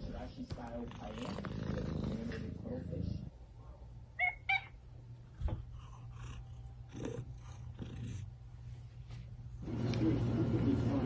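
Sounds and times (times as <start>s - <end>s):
cat chirping meows: 4.2s - 4.8s.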